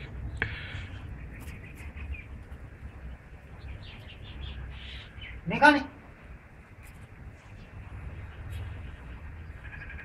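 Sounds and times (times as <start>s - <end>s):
steady low rumble: 0.0s - 10.0s.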